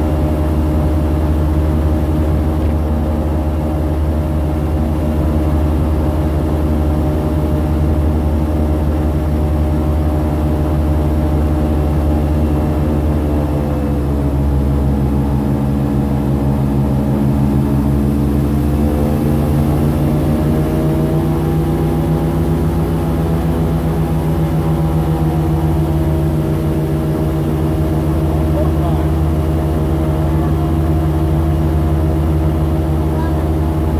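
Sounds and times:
airboat engine and propeller: 0:00.0 - 0:33.9.

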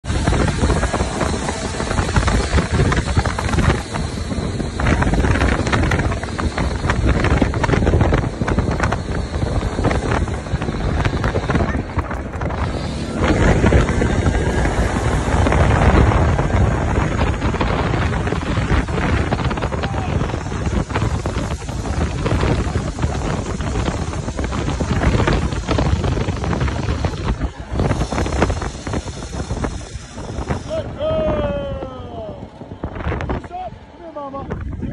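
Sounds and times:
vehicle low rumble: 0:00.0 - 0:34.9
wind buffeting microphone: 0:00.0 - 0:34.9.

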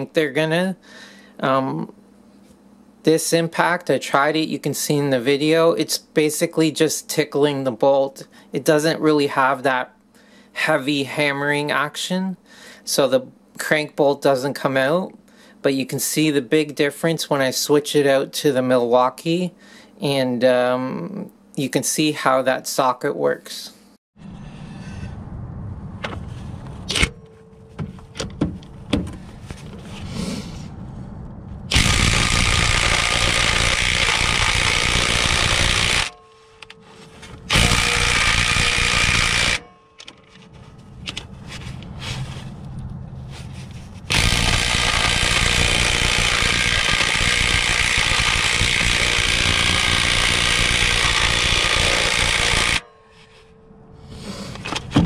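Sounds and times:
impact wrench hammering on bolt: 0:31.7 - 0:36.8, 0:37.5 - 0:40.2, 0:44.1 - 0:52.8.

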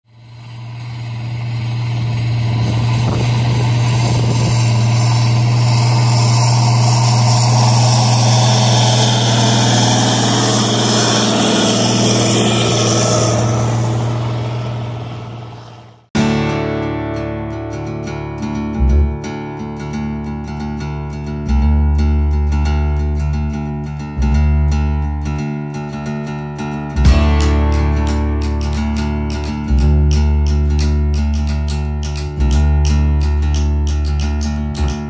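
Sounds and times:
tractor engine running: 0:00.0 - 0:17.8, 0:18.8 - 0:19.2, 0:27.0 - 0:35.0.

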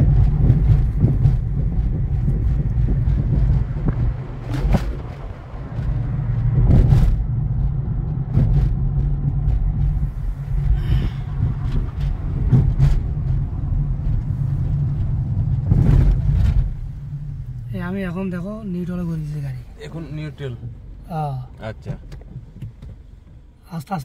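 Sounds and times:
short thumps: 0:00.0 - 0:07.4, 0:08.2 - 0:17.7
car road rumble: 0:00.0 - 0:24.0.

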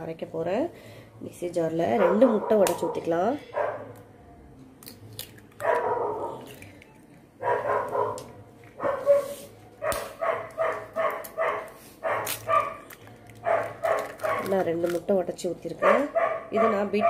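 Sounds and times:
dog barking: 0:02.0 - 0:03.9, 0:05.6 - 0:06.4, 0:07.4 - 0:08.2, 0:08.8 - 0:12.8, 0:13.4 - 0:14.5, 0:15.8 - 0:17.0.

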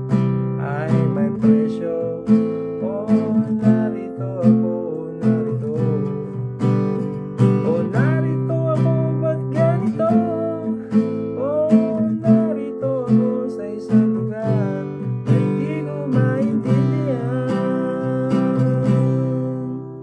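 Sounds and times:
acoustic guitar strumming: 0:00.0 - 0:20.0.

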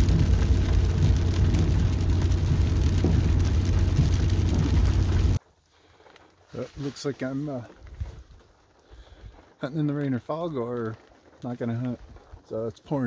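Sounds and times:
rain striking windshield: 0:00.0 - 0:05.4
truck driving on wet road: 0:00.0 - 0:05.4.

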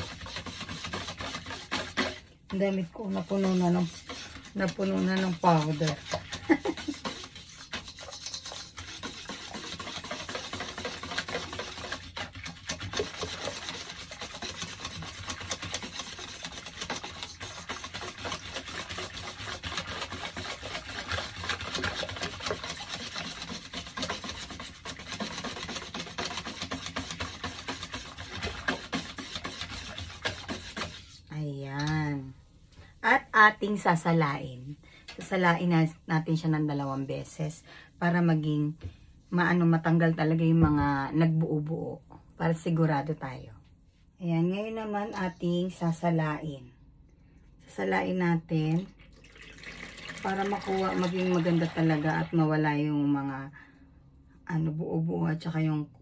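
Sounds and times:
utensil scraping batter bowl: 0:00.0 - 0:38.6, 0:49.6 - 0:53.4.

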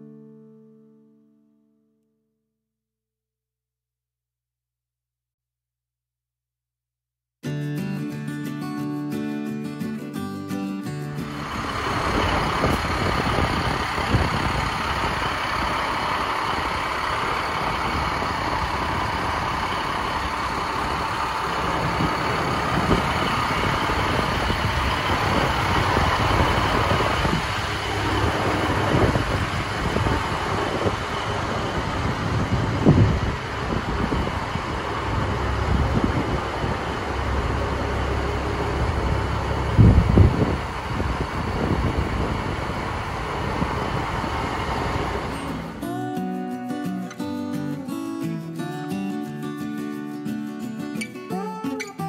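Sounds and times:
diesel truck idling: 0:11.2 - 0:45.9.

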